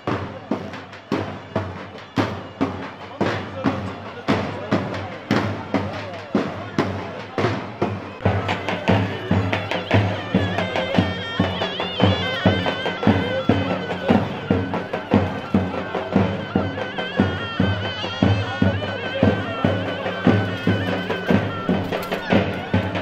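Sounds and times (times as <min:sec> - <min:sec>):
bass drum beating folk rhythm: 0:00.0 - 0:23.0
shrill wavering reed melody: 0:08.2 - 0:23.0.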